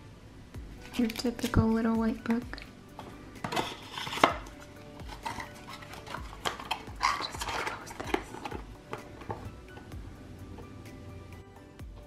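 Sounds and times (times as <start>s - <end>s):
paper and cardboard rustling: 3.4s - 9.4s.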